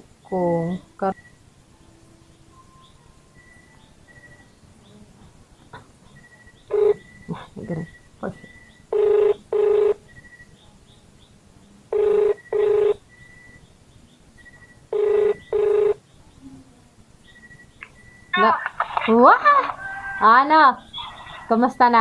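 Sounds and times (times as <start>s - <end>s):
phone ringback tone: 6.2s - 10.5s, 11.9s - 13.6s, 14.4s - 16.0s.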